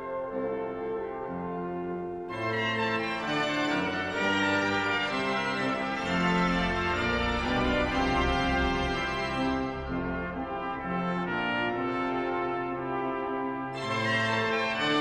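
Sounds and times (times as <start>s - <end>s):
brass quintet chords: 0.0s - 15.0s
low bass line: 5.9s - 11.3s.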